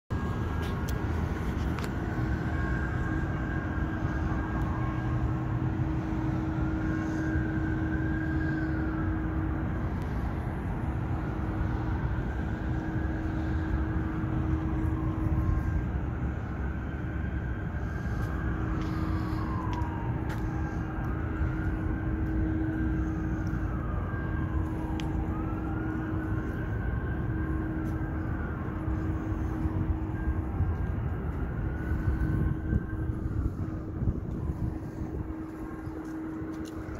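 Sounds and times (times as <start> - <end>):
low rumble and hum: 0.1 - 36.9
rising and falling high whine: 0.1 - 36.9.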